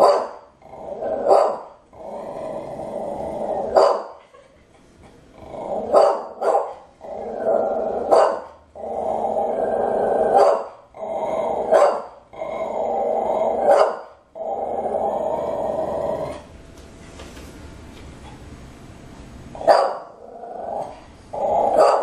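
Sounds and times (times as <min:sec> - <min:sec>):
dog barking: 0:00.0 - 0:00.4, 0:01.3 - 0:01.7, 0:03.8 - 0:04.2, 0:05.9 - 0:06.8, 0:08.1 - 0:08.5, 0:10.3 - 0:10.8, 0:11.7 - 0:12.1, 0:13.7 - 0:14.1, 0:19.6 - 0:20.1, 0:21.7 - 0:22.0
small dog growling: 0:00.6 - 0:01.3, 0:01.9 - 0:03.8, 0:05.3 - 0:06.0, 0:07.0 - 0:13.7, 0:14.4 - 0:16.5, 0:20.1 - 0:22.0.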